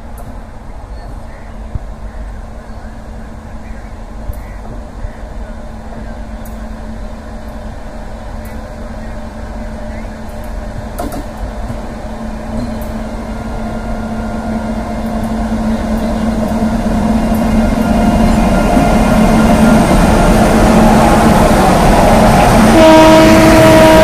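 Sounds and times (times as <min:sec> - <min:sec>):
wheels rumbling on rails: 0:00.0 - 0:24.0.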